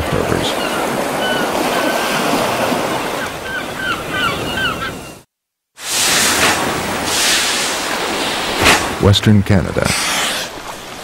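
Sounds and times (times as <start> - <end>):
rushing water: 0.0 - 4.2, 5.8 - 11.0
gulls crying: 0.0 - 5.3
sea waves: 0.0 - 11.0.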